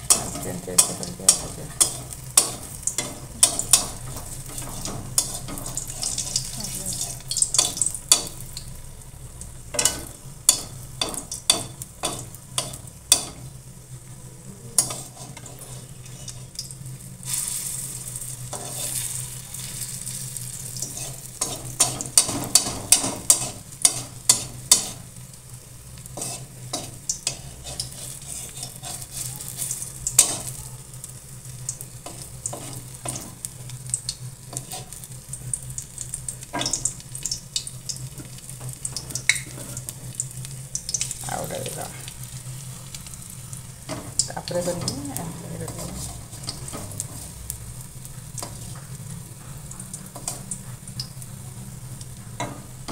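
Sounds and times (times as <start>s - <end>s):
spatula scraping a pan: 0.0s - 8.4s, 14.8s - 16.6s, 17.3s - 25.2s, 26.0s - 30.6s, 32.0s - 33.5s, 34.5s - 35.1s, 38.1s - 40.1s, 43.9s - 47.4s
oil sizzling in a pan: 0.0s - 52.9s.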